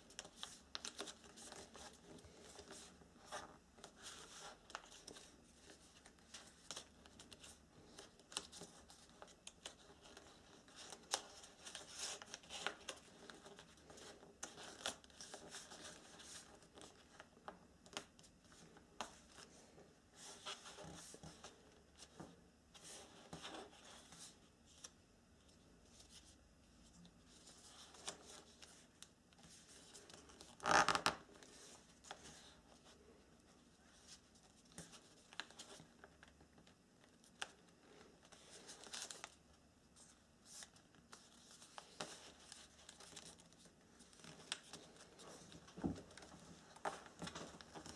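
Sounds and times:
paper rustling and crinkling: 0.0s - 24.9s, 25.8s - 39.4s, 40.0s - 47.9s.

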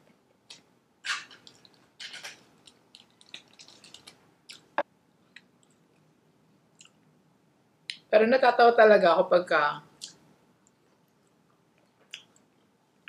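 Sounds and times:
small clicks and crunches: 0.4s - 5.8s.

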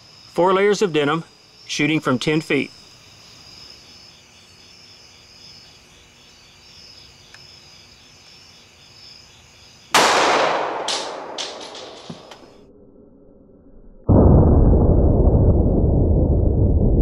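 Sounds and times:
crickets chirring: 0.0s - 12.7s
pistol shot: 10.0s - 12.5s.

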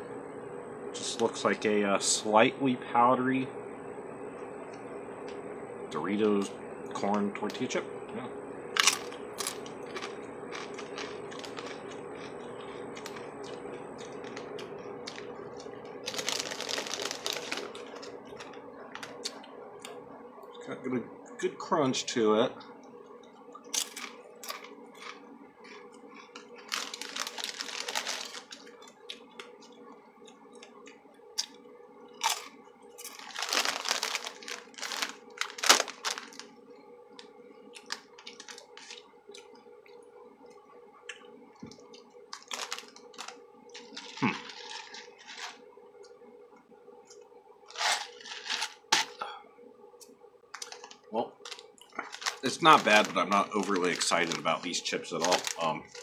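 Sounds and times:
crunching tortilla chips: 8.8s - 19.4s, 23.7s - 29.7s, 32.2s - 36.6s, 37.8s - 39.0s, 42.3s - 45.6s, 47.7s - 49.2s, 50.5s - 56.0s.

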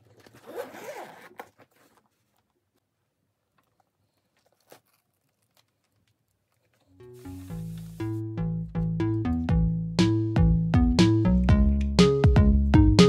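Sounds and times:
zipper pulled open: 0.2s - 2.0s.

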